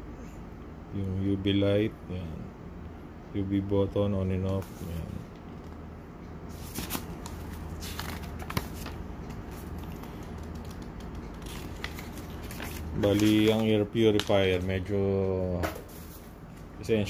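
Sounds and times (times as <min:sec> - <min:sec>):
paper pages rustling: 0:06.5 - 0:14.6.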